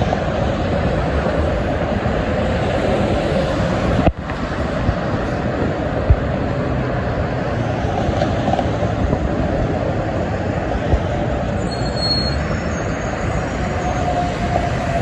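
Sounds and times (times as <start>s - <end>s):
freeway traffic roar: 0.0s - 15.0s
brief high squeal: 11.6s - 14.6s.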